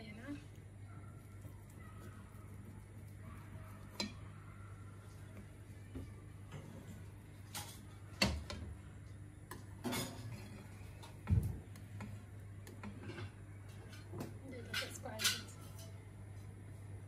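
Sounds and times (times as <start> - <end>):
cutlery scraping and knocking plate: 14.7 - 16.0.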